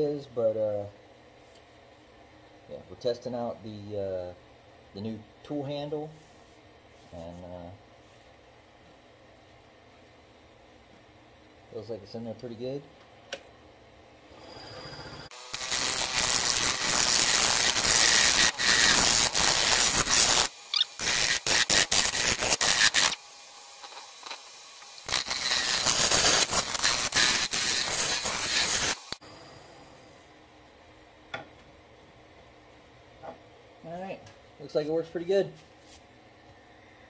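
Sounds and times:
lathe tool scraping wood: 14.3 - 23.2, 23.8 - 29.2.

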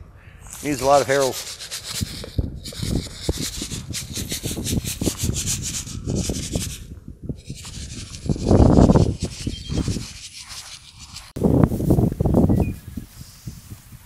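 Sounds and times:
granules scratching on gravelly soil: 0.4 - 6.8, 7.4 - 13.9.

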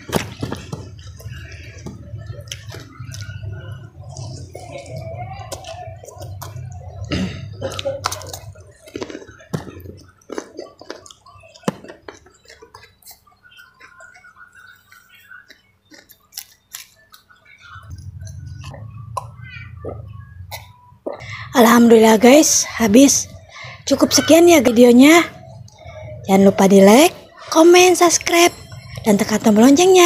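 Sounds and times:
wet chewing and lip-smacking: 0.3 - 21.2.

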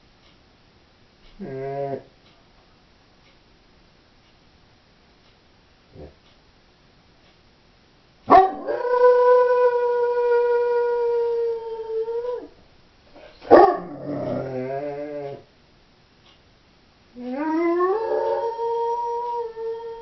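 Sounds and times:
dog howling: 8.3 - 12.6, 13.5 - 15.4, 17.2 - 20.0.

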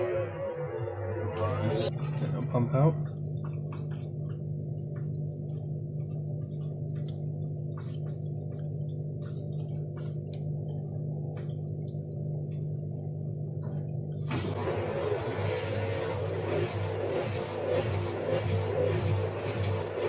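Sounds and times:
drain pump humming: 0.0 - 20.0.

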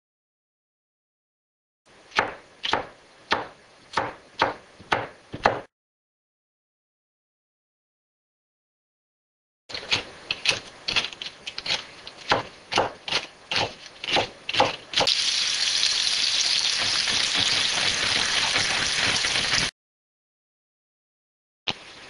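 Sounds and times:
knife chopping on cutting board: 2.1 - 5.7, 9.8 - 15.2
egg sizzling in oil: 15.0 - 19.7.

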